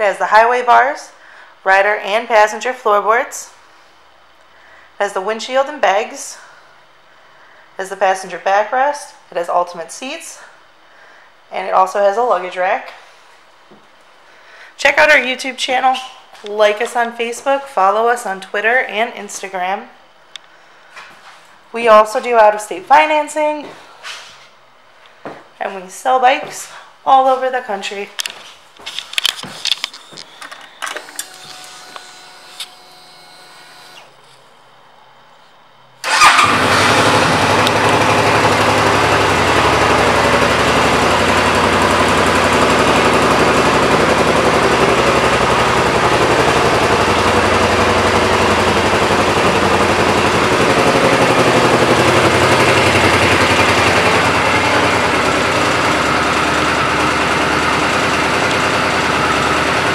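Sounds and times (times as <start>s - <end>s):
motorcycle engine starting and idling: 36.0s - 59.9s.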